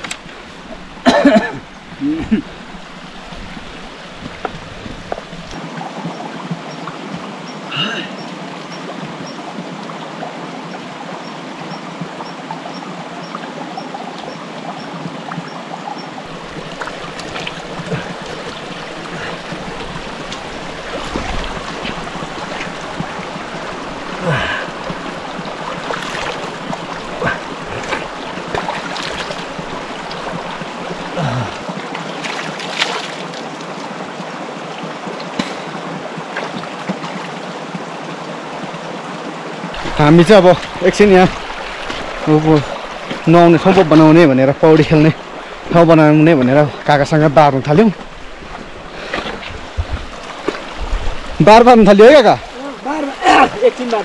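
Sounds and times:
stream running: 0.0 - 54.0
low thuds: 49.2 - 51.4.

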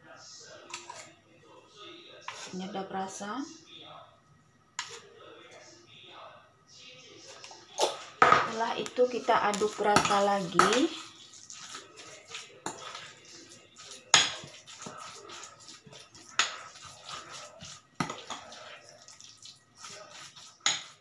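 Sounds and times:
utensil stirring wet batter: 0.5 - 3.1, 4.8 - 5.8, 6.8 - 21.0
metal clinking against glass bowl: 13.8 - 15.0.

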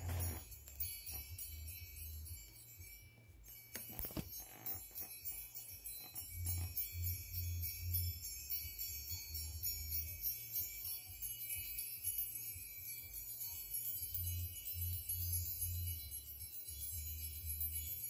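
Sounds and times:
soft tinkling chimes: 0.0 - 18.0.

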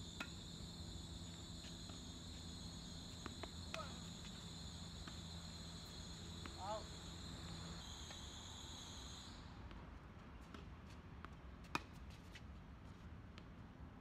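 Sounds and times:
insects trilling: 0.0 - 9.4.

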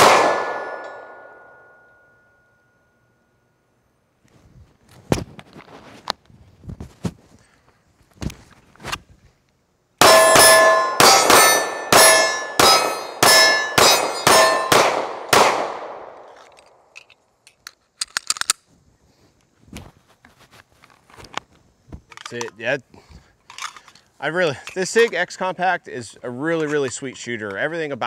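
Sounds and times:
pistol shots: 0.0 - 1.4, 10.0 - 16.8
steel targets clanging: 0.0 - 2.2, 10.0 - 15.0.

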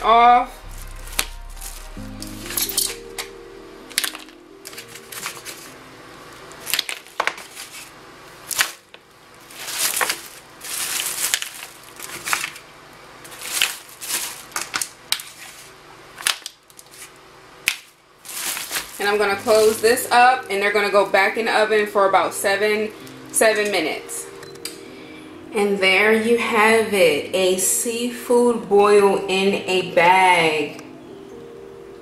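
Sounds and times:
plastic bag crinkling: 4.0 - 21.3
mussels dropping into bag: 9.6 - 12.6, 13.3 - 17.1, 17.7 - 19.7.

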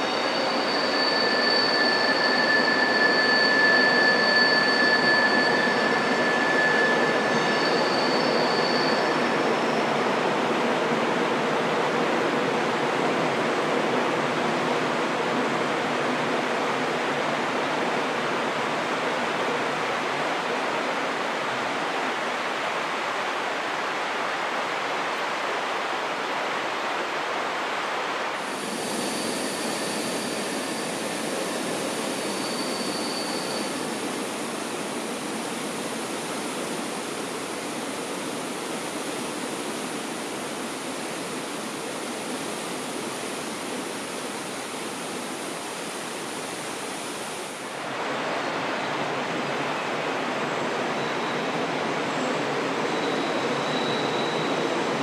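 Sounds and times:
rushing mountain river: 0.0 - 55.0.

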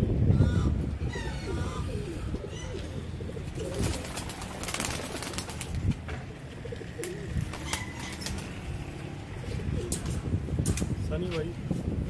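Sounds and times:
pigeons cooing: 0.3 - 10.3
wings rustling: 2.7 - 6.0, 6.7 - 8.8.

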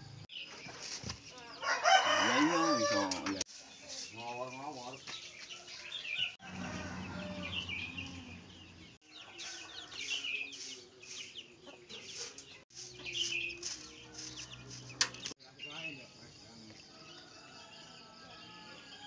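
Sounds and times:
small birds chirping: 0.0 - 19.0
broom sweeping bare ground: 3.4 - 5.8, 9.4 - 15.4
chickens clucking: 6.3 - 15.4.

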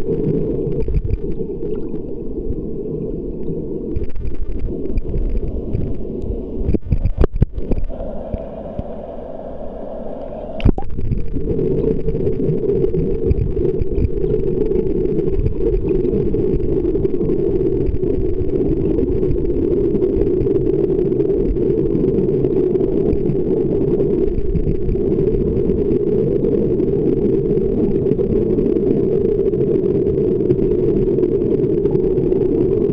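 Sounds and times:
underwater waterfall rumble: 0.0 - 32.9.

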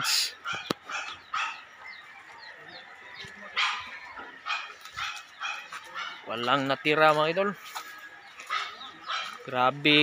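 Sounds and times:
dog barking: 0.4 - 1.7, 3.5 - 6.3, 8.5 - 9.5.

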